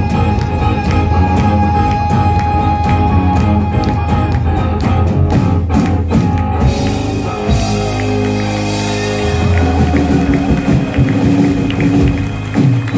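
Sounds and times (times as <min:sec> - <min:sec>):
rock band playing: 0:00.0 - 0:12.9.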